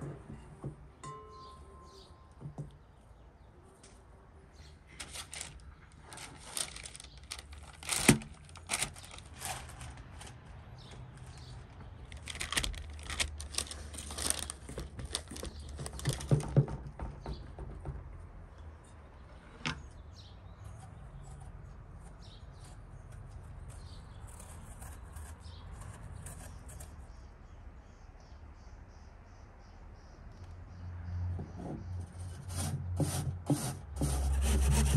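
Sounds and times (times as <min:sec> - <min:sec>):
baking paper rustling: 0:04.9 - 0:10.5, 0:11.2 - 0:16.7, 0:32.4 - 0:34.9.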